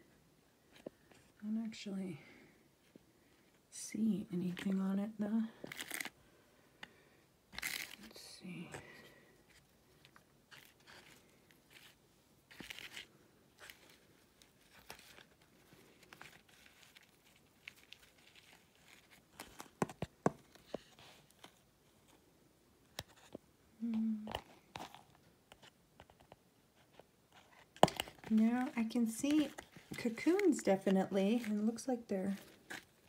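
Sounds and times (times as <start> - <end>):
person humming: 23.8 - 24.4.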